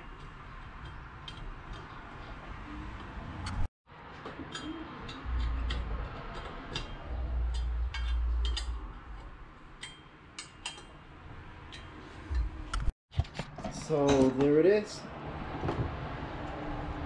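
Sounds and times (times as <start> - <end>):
metal bolts clinking: 4.4 - 11.0.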